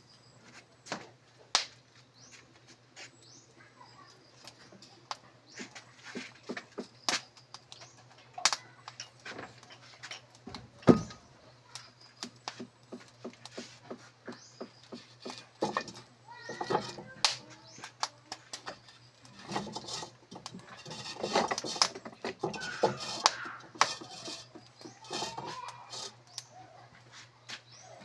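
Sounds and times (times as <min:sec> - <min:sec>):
metal spatula scraping a wok: 0:18.6 - 0:26.2.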